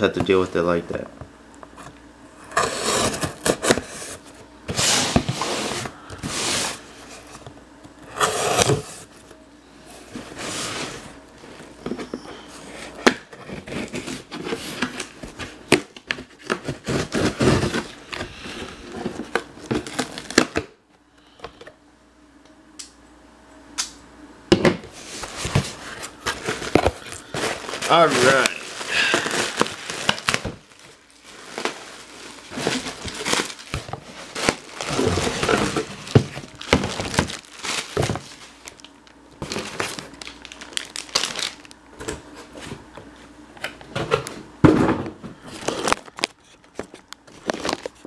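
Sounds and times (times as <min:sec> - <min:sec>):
cardboard scraping and rubbing: 0:02.5 - 0:07.4, 0:31.3 - 0:38.4.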